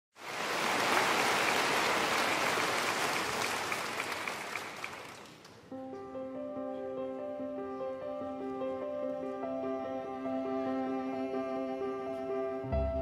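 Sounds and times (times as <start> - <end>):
crowd applauding: 0.2 - 5.7.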